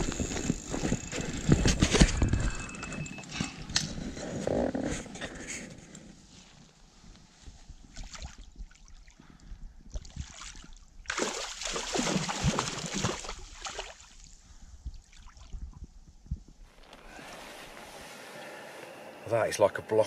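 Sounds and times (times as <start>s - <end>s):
fish splashing and thrashing: 9.9s - 14.3s.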